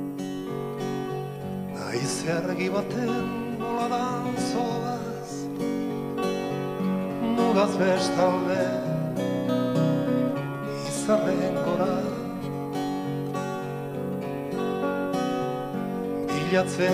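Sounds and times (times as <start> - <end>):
keyboard: 0.0 - 16.9
strummed acoustic guitars: 0.0 - 16.9
accordion: 6.8 - 12.5.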